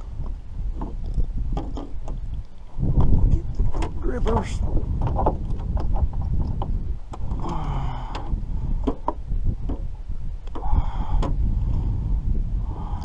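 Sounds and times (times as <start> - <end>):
steady low rumble: 0.0 - 13.0
knocks and clatters in metal boat: 0.7 - 2.2, 2.9 - 7.4, 8.1 - 9.9.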